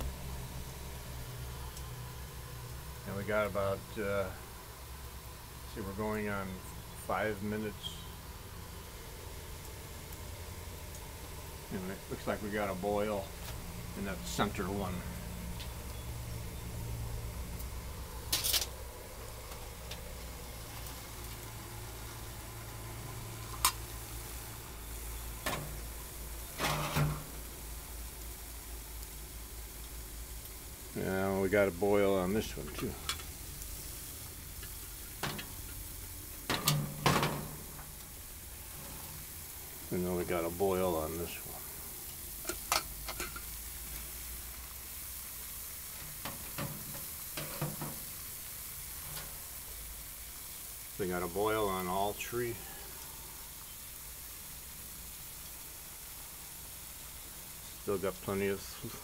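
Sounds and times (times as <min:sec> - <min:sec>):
water boiling in a pot: 0:00.0 - 0:59.0
rattling handling noise: 0:26.6 - 0:27.4, 0:36.5 - 0:37.9.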